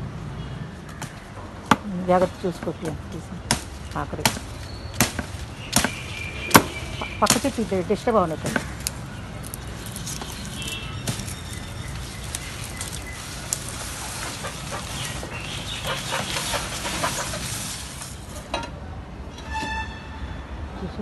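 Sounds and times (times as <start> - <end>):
sugarcane leaves rustling: 2.2 - 18.6.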